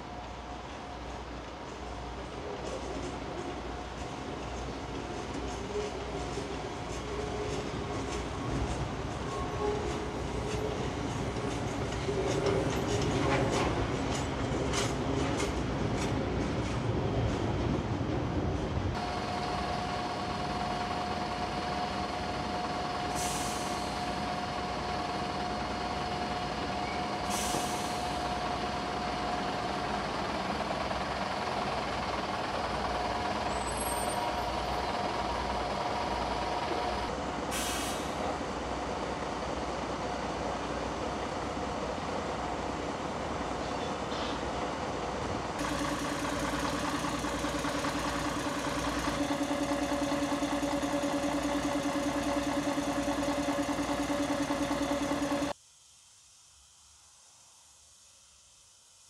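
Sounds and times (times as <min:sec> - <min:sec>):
diesel train idling whine: 0:00.0 - 0:55.6
train wheels clicking over rails: 0:00.2 - 0:55.6
air release hisses: 0:23.1 - 0:24.0, 0:27.2 - 0:28.2, 0:37.5 - 0:38.3.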